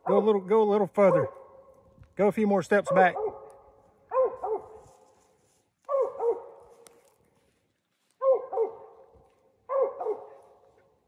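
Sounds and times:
dog barking: 1.0s - 1.7s, 2.9s - 4.8s, 5.9s - 6.8s, 8.2s - 10.8s.

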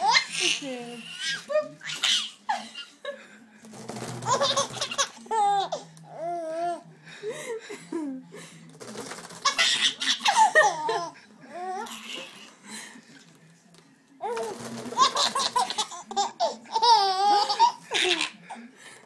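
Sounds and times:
baby laughing: 0.0s - 2.9s, 4.2s - 5.9s, 9.4s - 12.5s, 14.2s - 18.5s.

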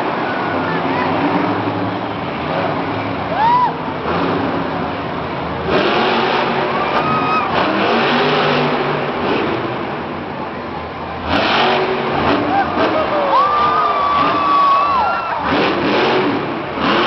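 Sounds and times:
monster truck engine revving: 0.0s - 17.0s
crowd din: 12.2s - 16.6s.

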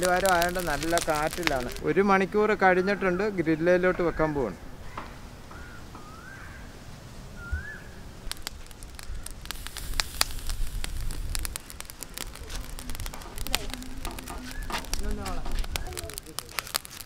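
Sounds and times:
fish sizzling on charcoal grill: 0.0s - 2.1s, 7.6s - 17.0s
low wind rumble: 0.0s - 16.4s.

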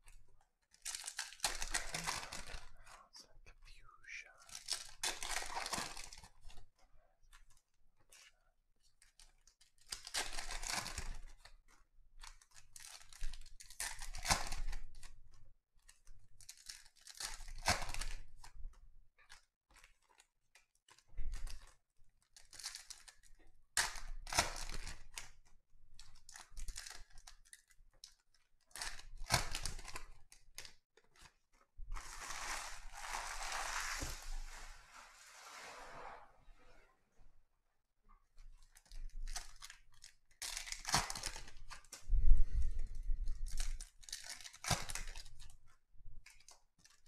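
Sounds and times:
foil packaging crinkling and ripping: 0.7s - 2.7s, 4.5s - 6.6s, 9.8s - 11.2s, 22.4s - 25.2s, 26.2s - 27.6s, 28.7s - 31.3s, 31.9s - 35.1s, 38.6s - 42.0s, 43.3s - 45.5s.

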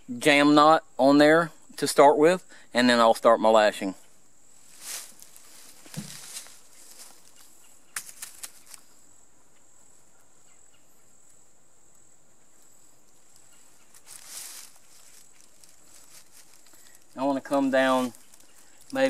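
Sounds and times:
insect high-pitched whine: 0.0s - 19.0s
dry leaves rustling: 4.6s - 8.9s, 13.2s - 19.0s.

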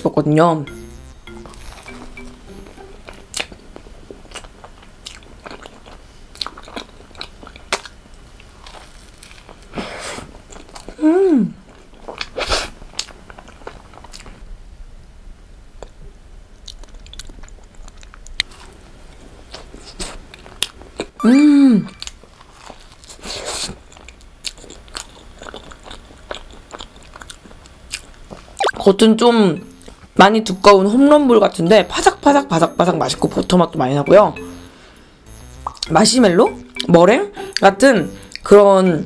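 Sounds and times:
crunchy pastry chewing: 22.4s - 28.5s.

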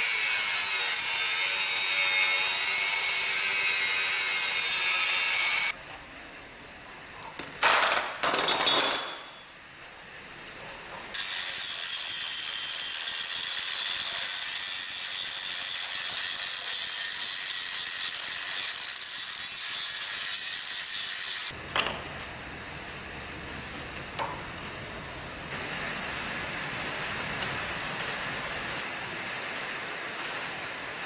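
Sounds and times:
angle grinder grinding metal: 0.0s - 5.8s, 11.2s - 21.6s.

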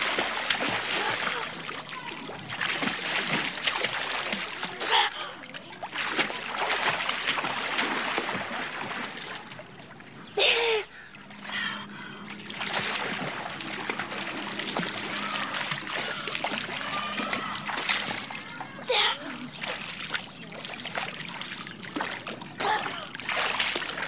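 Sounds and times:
water splashing: 0.0s - 24.0s
child shouting: 1.9s - 2.3s, 15.1s - 16.2s, 16.8s - 17.8s, 18.4s - 19.4s.

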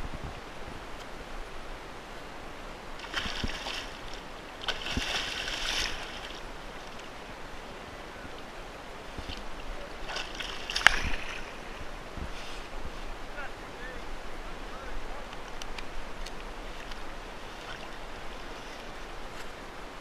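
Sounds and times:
wind hiss: 0.0s - 20.0s
water lapping: 1.4s - 19.7s
fish thrashing and splashing: 3.0s - 6.4s.

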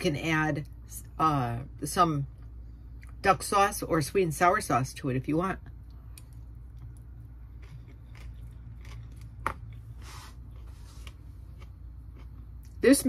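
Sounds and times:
steady low hum: 0.0s - 13.0s
person chewing: 5.8s - 12.8s.

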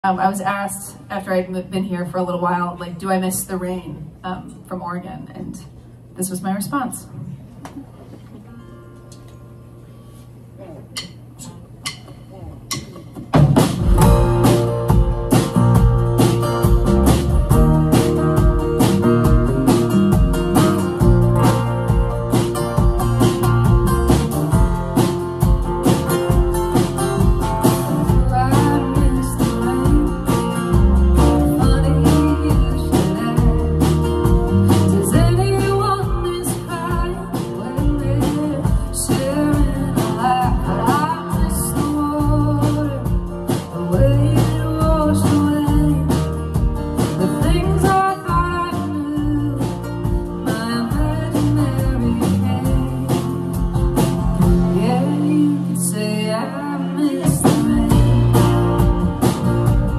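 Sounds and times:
drums: 10.0s - 59.9s
acoustic guitars strumming: 11.0s - 59.9s
electric guitar: 13.4s - 59.9s
woman singing: 28.0s - 53.7s, 54.6s - 59.4s.

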